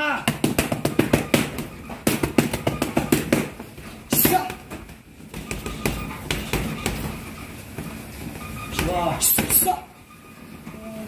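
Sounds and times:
boxing gloves hitting focus mitts: 0.0s - 7.9s.

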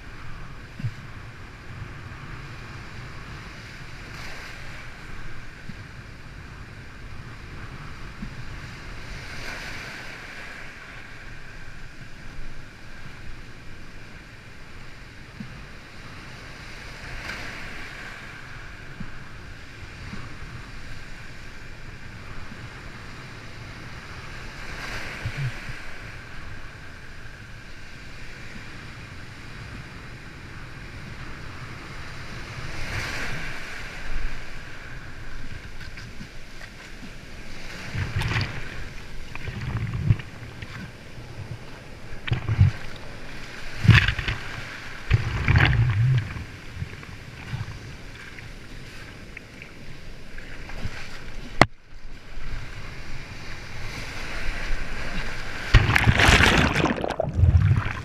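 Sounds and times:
rushing water and surf: 0.0s - 58.0s
waves breaking: 0.0s - 58.0s
wind buffeting microphone: 37.7s - 48.1s.

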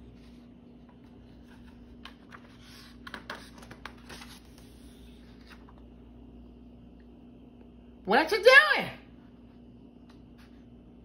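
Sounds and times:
book pages turning: 0.0s - 5.9s
faint steady hum: 0.0s - 11.0s.

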